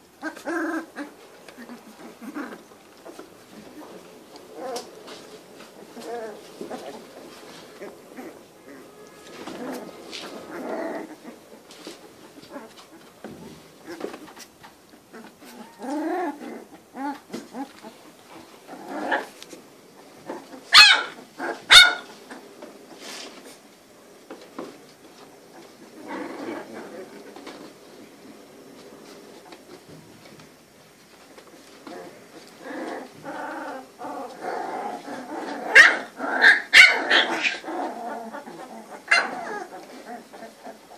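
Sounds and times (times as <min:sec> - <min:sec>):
puppies whining and whimpering: 0:15.1 - 0:18.0, 0:32.0 - 0:40.9
puppy yelps: 0:20.7 - 0:22.1, 0:35.7 - 0:37.7, 0:39.0 - 0:39.7.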